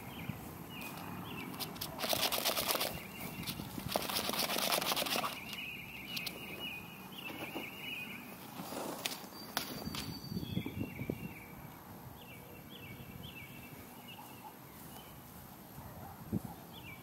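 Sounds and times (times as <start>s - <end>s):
rustling in grass: 0.0s - 10.3s, 13.6s - 16.6s
faint high chirping: 9.0s - 15.3s.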